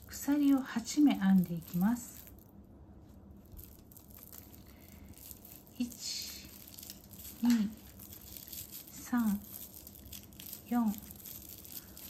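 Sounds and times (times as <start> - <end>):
person speaking: 0.0 - 2.3, 5.7 - 9.7, 10.4 - 11.4
plastic tape crinkling and rustling: 0.0 - 12.0.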